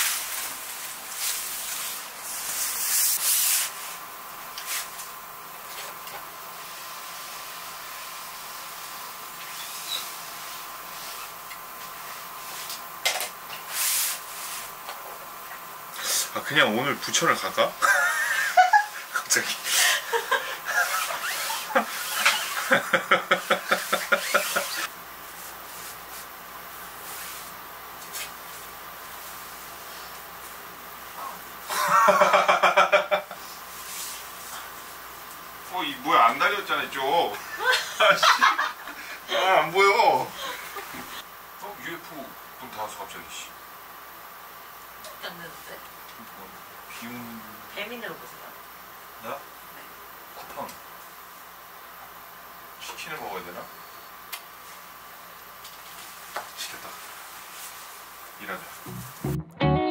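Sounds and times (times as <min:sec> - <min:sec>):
steady room hiss: 0:00.0 - 0:59.9
man laughing: 0:17.8 - 0:24.9, 0:31.7 - 0:33.4, 0:37.4 - 0:39.1.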